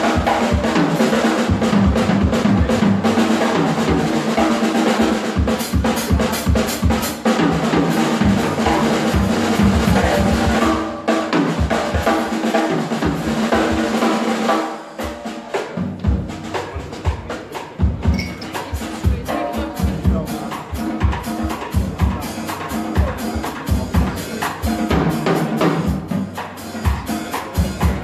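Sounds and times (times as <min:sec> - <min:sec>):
drum kit fills: 0:00.0 - 0:28.0.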